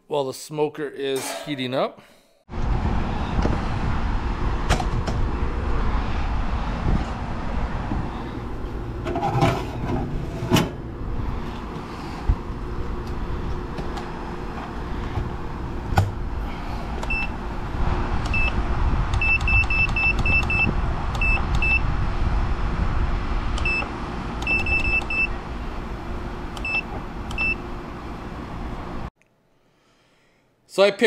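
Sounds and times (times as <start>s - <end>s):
steady low rumble: 2.5s - 29.1s
control panel beeping: 19.2s - 21.8s, 23.6s - 25.4s, 26.6s - 27.6s.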